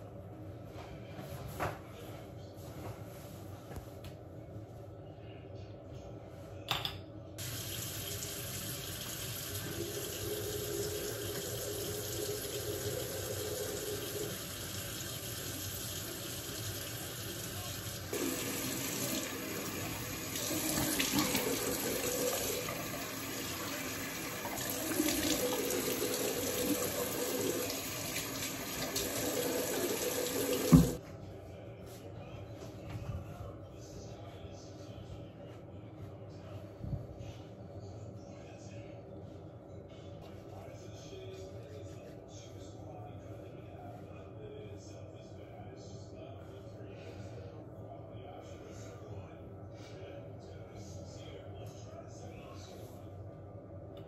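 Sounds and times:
tap water splashing into basin: 24.4 - 31.0.

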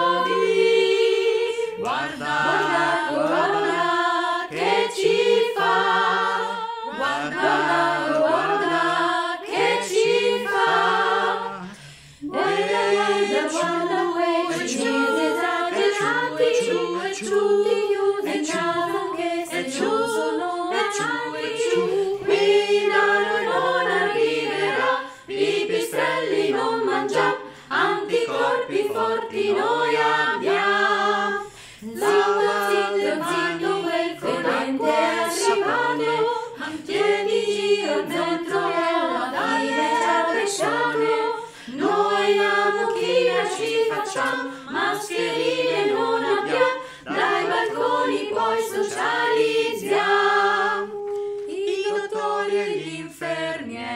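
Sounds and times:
a cappella group singing: 0.0 - 53.9.

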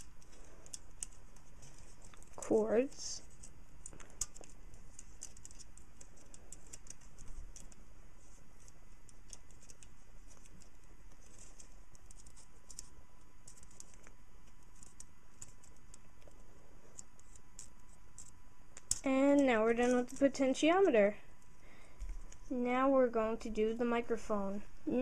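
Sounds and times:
wire cords clicking against plastic: 0.0 - 2.4, 3.2 - 7.9, 8.6 - 20.4.

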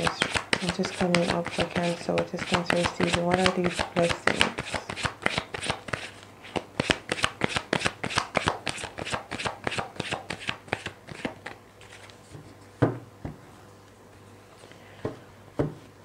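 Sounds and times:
cards being shuffled: 0.0 - 12.3.

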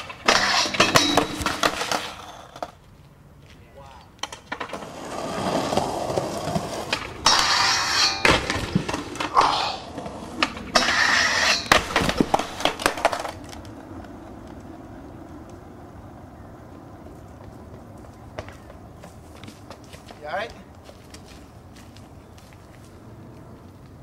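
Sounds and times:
skateboard clacks: 0.0 - 2.8, 4.1 - 15.9
skateboard scraping: 0.0 - 3.2, 4.2 - 20.2
skateboard wheels rolling: 0.0 - 24.0.

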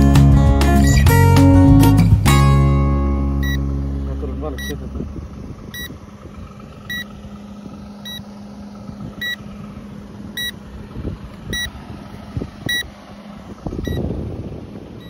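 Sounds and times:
low hum: 0.0 - 15.0
remote controller beeping: 3.4 - 3.8, 4.5 - 4.8, 5.7 - 6.0, 6.9 - 7.1, 8.0 - 8.3, 9.2 - 9.4, 10.4 - 10.6, 11.5 - 11.7, 12.7 - 12.9, 13.8 - 14.0.

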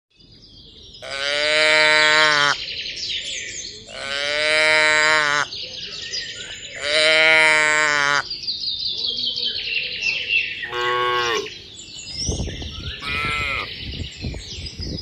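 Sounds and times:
cattle mooing: 10.7 - 11.5.

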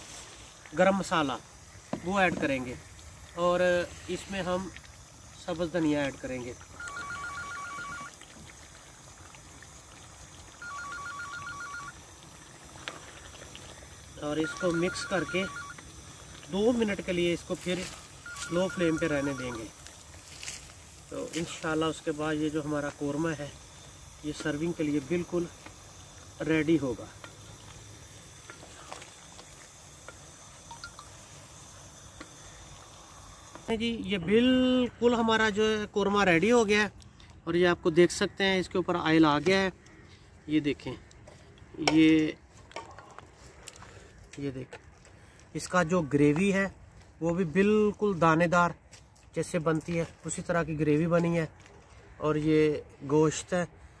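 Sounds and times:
telephone ringing: 6.8 - 8.1, 10.6 - 12.0, 14.3 - 15.8, 18.2 - 19.7.

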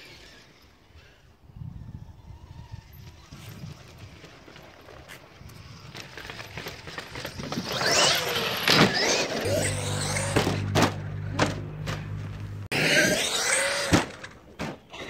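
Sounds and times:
electric motor whining: 7.7 - 14.3
background music with bass: 9.5 - 12.7.

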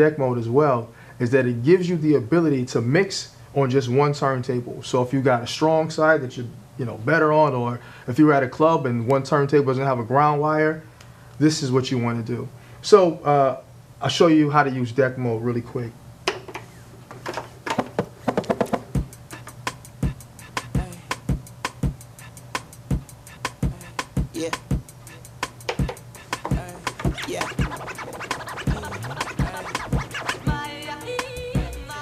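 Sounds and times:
record scratches: 17.7 - 32.0
hip-hop beat: 18.3 - 32.0
held chords track: 18.5 - 32.0.

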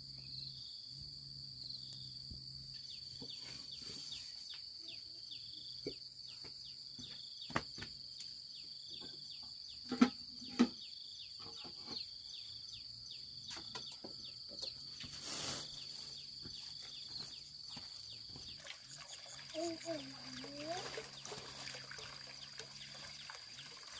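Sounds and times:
insects buzzing: 0.0 - 23.9
bird chirping: 8.5 - 23.9.

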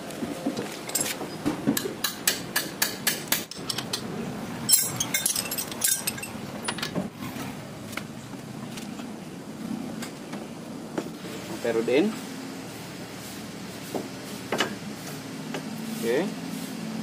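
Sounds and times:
metal clinks and knocks: 0.8 - 1.4, 3.5 - 7.0.

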